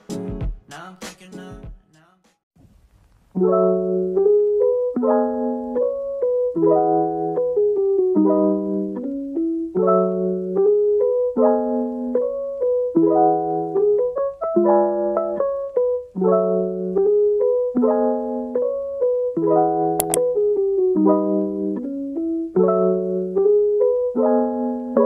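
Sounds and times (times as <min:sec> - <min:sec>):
slow piano chords: 0:03.4 - 0:25.0
sharp clicks: 0:20.0 - 0:20.2.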